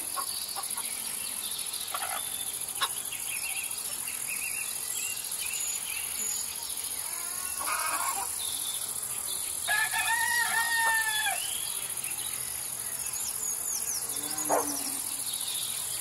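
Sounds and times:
crickets chirring: 0.0s - 16.0s
rooster crowing: 9.7s - 11.5s.

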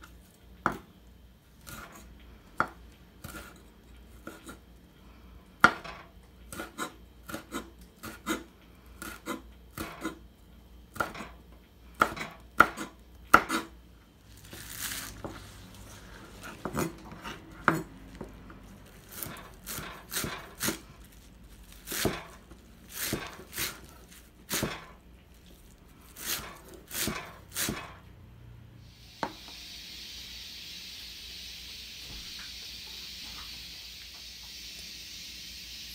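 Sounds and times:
knife chopping on wooden board: 5.6s - 5.9s, 6.5s - 10.2s, 10.9s - 11.4s, 12.0s - 13.8s, 16.4s - 18.3s, 19.1s - 20.8s, 21.9s - 23.9s, 24.5s - 25.0s, 26.2s - 28.0s
steady hiss: 28.8s - 35.9s.

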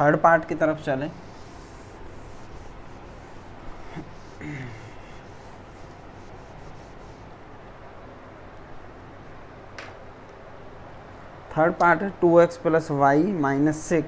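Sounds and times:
duster rubbing on whiteboard: 1.1s - 7.4s
low vocal murmur: 3.6s - 5.4s.

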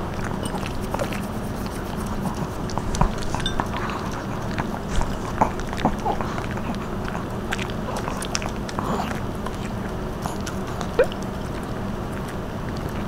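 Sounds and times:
clicks of teeth and plates: 0.0s - 13.0s
dogs chewing and licking: 0.0s - 13.0s.

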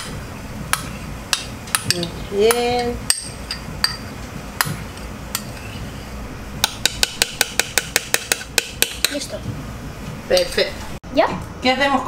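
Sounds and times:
spoon tapping on bowl: 0.7s - 5.6s, 6.6s - 9.2s
metal spoon clinking against bowls: 1.3s - 4.7s, 5.3s - 5.7s.

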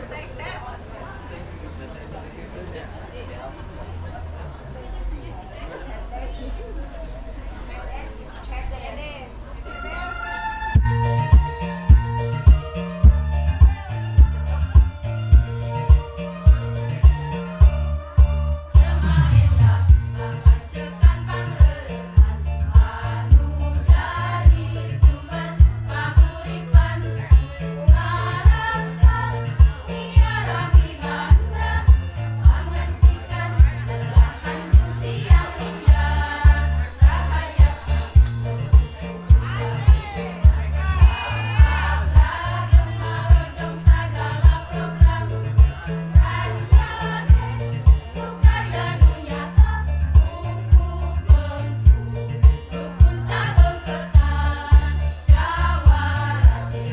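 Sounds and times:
bass line: 9.9s - 56.9s
thudding beat: 10.8s - 26.4s, 27.9s - 49.7s
women's choir singing: 18.8s - 38.2s, 39.6s - 56.9s
drum beat: 28.5s - 45.2s.

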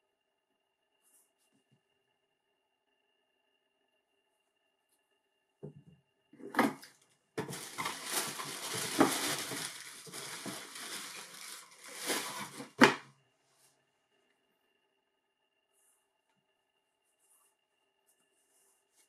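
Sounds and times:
tissue paper rustling: 7.4s - 13.0s.

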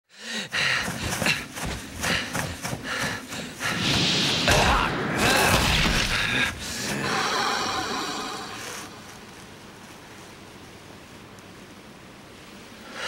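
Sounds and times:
noisy rush: 0.7s - 10.9s
thuds and hits: 3.7s - 6.5s
strained voice: 6.4s - 9.0s.

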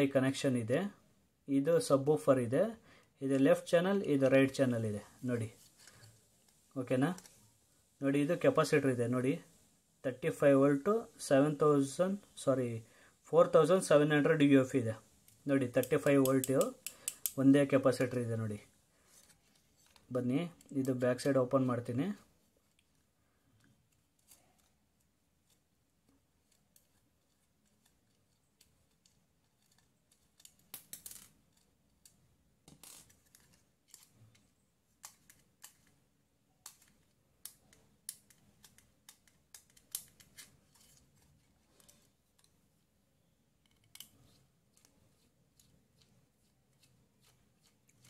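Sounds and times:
screwdriver clicks and scrapes on metal: 15.3s - 17.4s, 36.6s - 42.6s, 43.6s - 44.9s.

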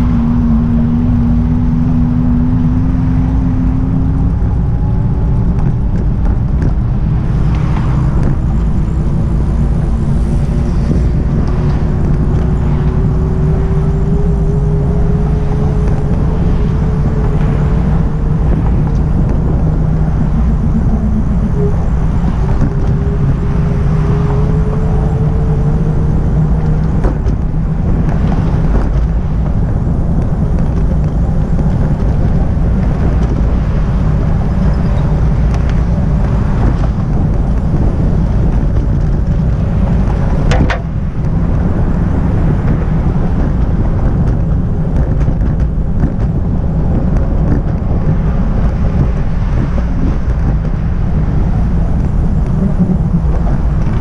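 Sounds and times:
thin rising whine: 0.0s - 43.0s
road traffic rumble: 0.0s - 54.0s.

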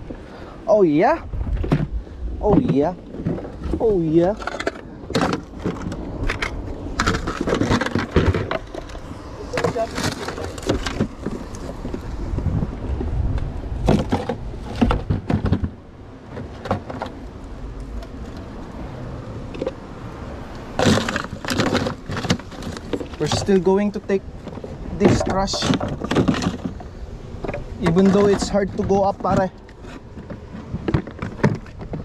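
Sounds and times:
microphone handling rumble: 0.0s - 16.9s
plastic tub knocking and rattling: 13.8s - 15.8s, 24.5s - 26.8s, 27.4s - 32.0s.

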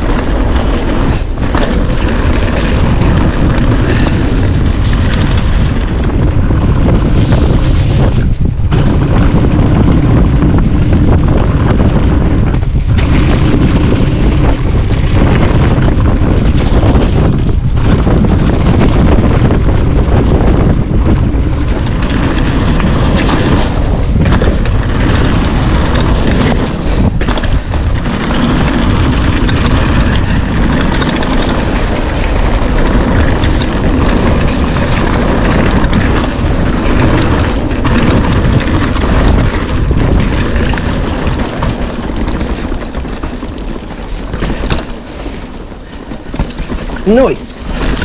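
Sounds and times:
bike tyres rumbling over trail: 0.0s - 48.0s
wind buffeting microphone: 0.0s - 48.0s.

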